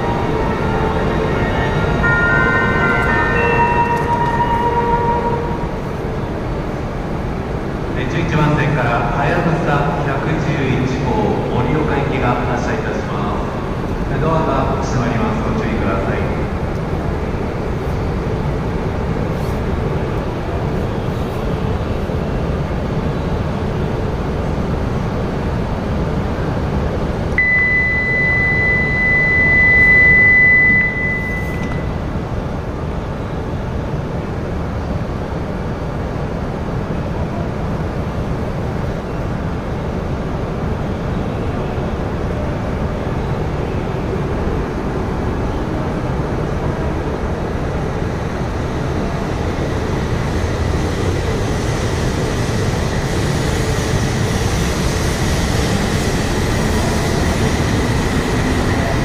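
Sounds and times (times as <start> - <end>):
train low hum: 0.0 - 59.0
high warning beep: 27.4 - 32.0.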